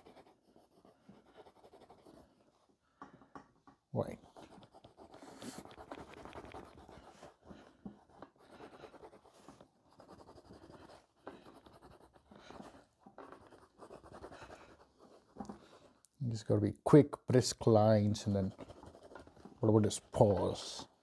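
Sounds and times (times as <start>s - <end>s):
crayon scratching on paper: 0.0s - 2.6s, 4.0s - 16.0s, 18.0s - 20.9s.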